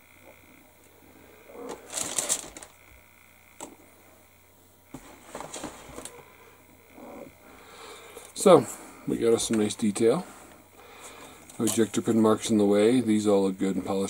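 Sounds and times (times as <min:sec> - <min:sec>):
plastic parts clattering and rustling: 0:01.6 - 0:02.8, 0:05.0 - 0:06.2, 0:11.4 - 0:12.0
plastic parts rattling: 0:01.7 - 0:02.8.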